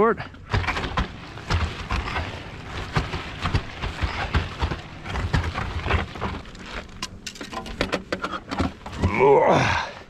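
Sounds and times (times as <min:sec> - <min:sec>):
footsteps crunching on shore: 0:00.5 - 0:07.2.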